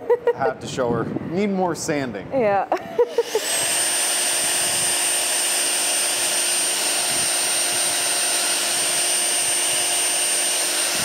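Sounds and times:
power sander on metal pipe: 0:03.0 - 0:11.0.

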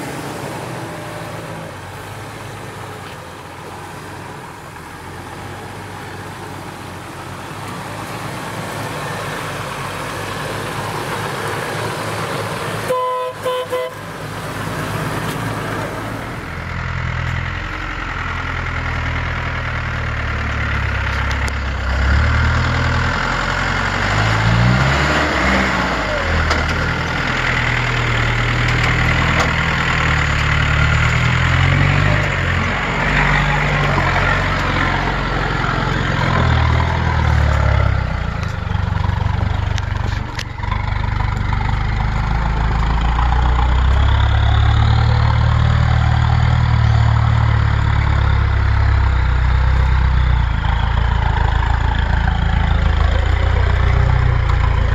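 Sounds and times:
engine working at low revs: 0:13.5 - 0:54.9.

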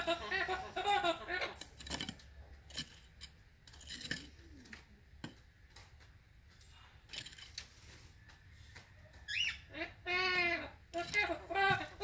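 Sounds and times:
hand rake scraping soil: 0:01.6 - 0:04.5.

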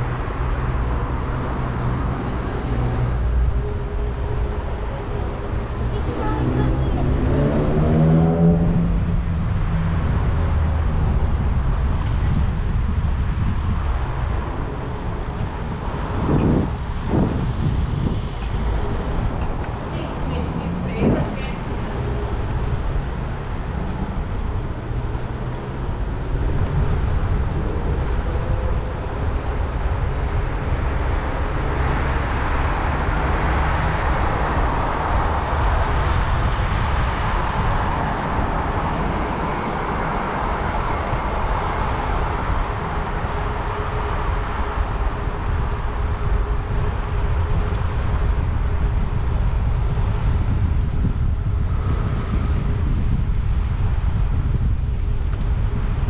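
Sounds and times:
road traffic: 0:00.0 - 0:56.0
wind rumble on microphone: 0:00.0 - 0:56.0.

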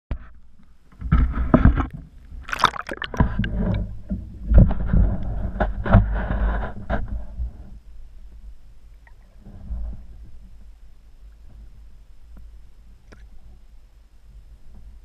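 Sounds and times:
water sloshing and gurgling: 0:01.2 - 0:06.6
irregular splashes: 0:02.4 - 0:03.8.

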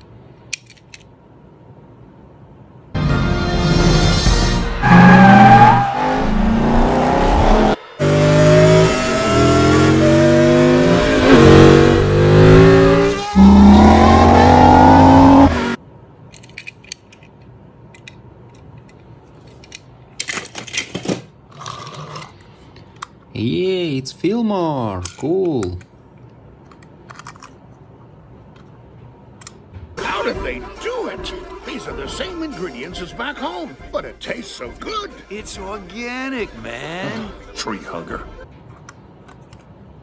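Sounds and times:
race car engines revving: 0:04.8 - 0:15.8.

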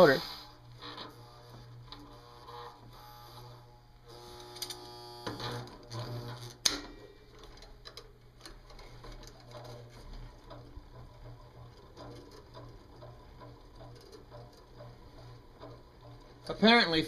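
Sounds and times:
small electric motor humming: 0:00.0 - 0:06.7
motor straining chewing wire: 0:00.0 - 0:17.0.

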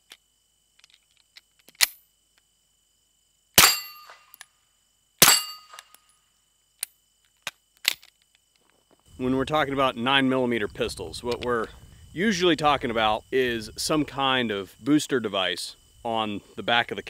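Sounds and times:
suppressed pistol shots: 0:03.6 - 0:04.2, 0:05.2 - 0:05.8.

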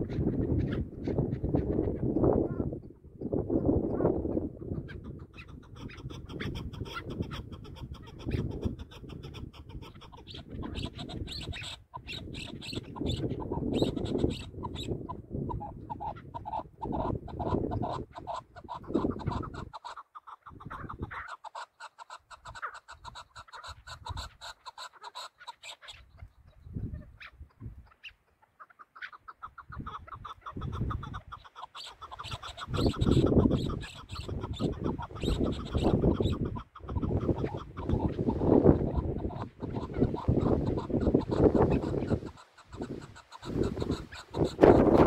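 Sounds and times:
partridges calling: 0:03.6 - 0:45.0.

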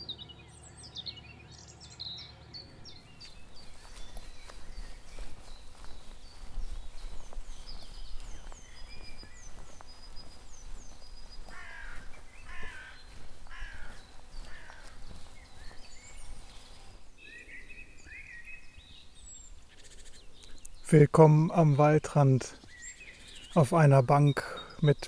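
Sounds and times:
songbirds whistling: 0:00.0 - 0:21.7, 0:22.6 - 0:25.0
crow cawing: 0:11.4 - 0:15.2.

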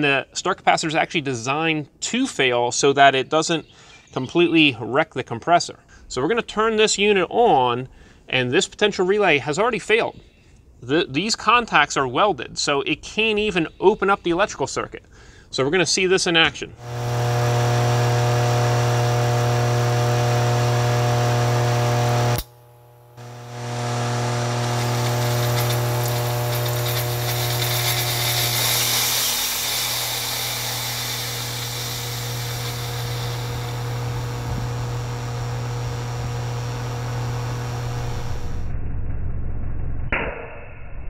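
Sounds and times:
hiss of venting capacitor: 0:16.8 - 0:38.5
compressor humming loudly: 0:16.8 - 0:38.7.

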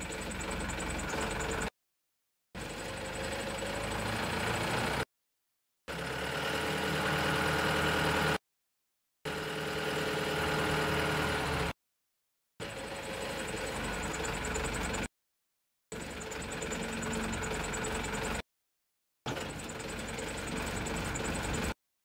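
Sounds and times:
diesel truck engine running: 0:00.0 - 0:01.7, 0:02.6 - 0:05.1, 0:09.3 - 0:11.8, 0:12.6 - 0:15.1, 0:15.9 - 0:18.4, 0:19.3 - 0:21.8
hydraulic whine: 0:12.6 - 0:15.1, 0:15.9 - 0:18.4, 0:19.3 - 0:21.8.

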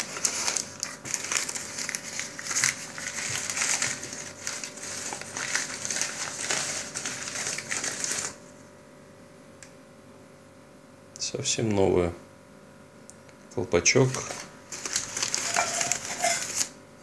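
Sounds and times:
paper crinkling and rustling: 0:00.0 - 0:08.5, 0:14.0 - 0:16.8.

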